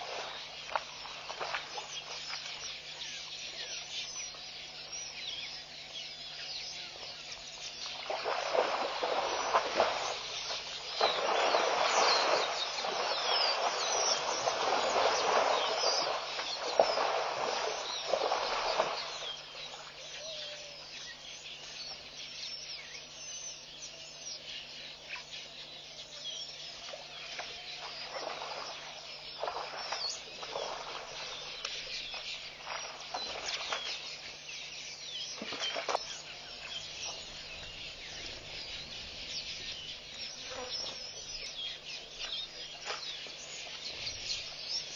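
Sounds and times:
elephant sloshing through mud: 0.0 - 2.7, 7.8 - 20.0, 26.9 - 34.2
birds chirping and calling: 0.0 - 44.9.

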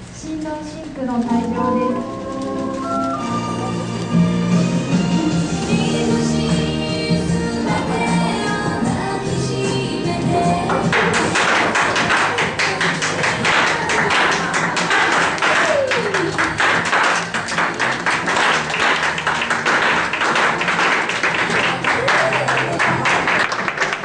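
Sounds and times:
music: 1.0 - 24.0
crowd clapping: 10.7 - 24.0.

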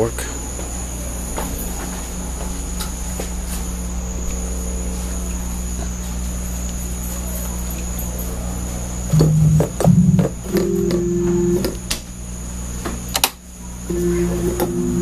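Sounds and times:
low electrical hum: 0.0 - 15.0
organ note: 9.1 - 11.8, 13.9 - 15.0.

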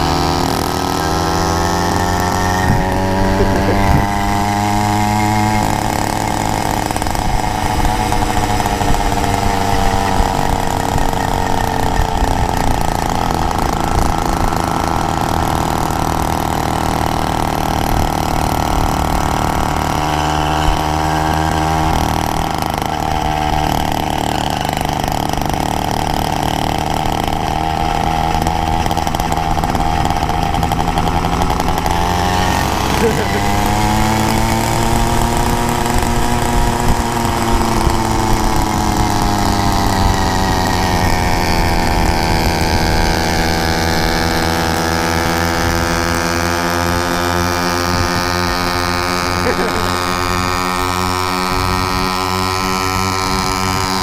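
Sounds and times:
small motorbike engine running: 0.0 - 54.0.

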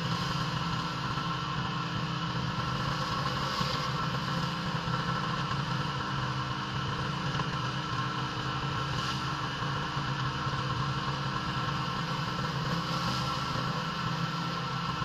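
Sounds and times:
pressure washer engine running: 0.0 - 6.4, 10.0 - 15.0.

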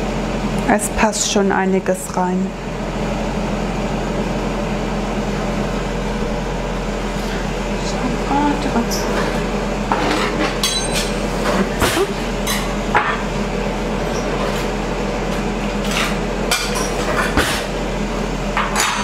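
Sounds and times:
kitchenware clinking: 10.0 - 11.2.

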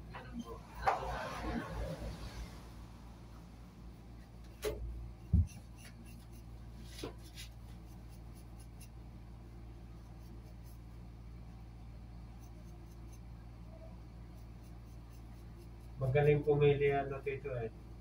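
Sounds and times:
steady low hum: 0.0 - 18.0
razor scraping scalp: 4.6 - 9.0, 10.0 - 11.0, 12.3 - 17.2.

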